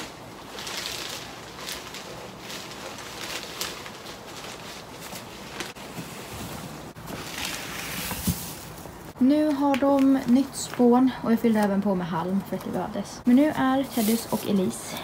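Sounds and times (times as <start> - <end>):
wood shavings rustling: 0.0 - 5.9, 6.9 - 9.2, 13.3 - 14.8.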